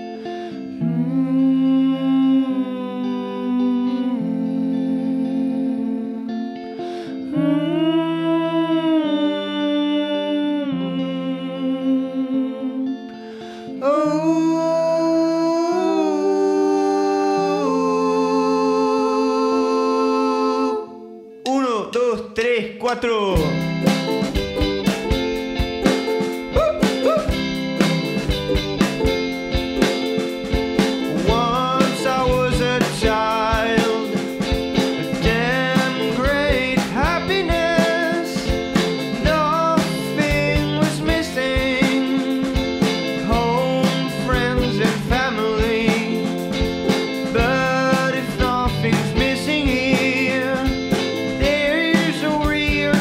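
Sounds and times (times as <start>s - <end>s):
voices singing in harmony: 7.3s - 13.0s, 13.8s - 21.2s, 31.0s - 34.4s
band playing a song: 23.4s - 53.0s
drum hits: 23.4s - 53.0s
sliding melody line: 23.4s - 53.0s.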